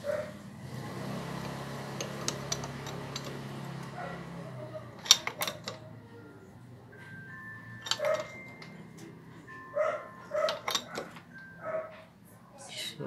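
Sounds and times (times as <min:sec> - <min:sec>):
wrench clicking on nut: 0:05.0 - 0:05.8.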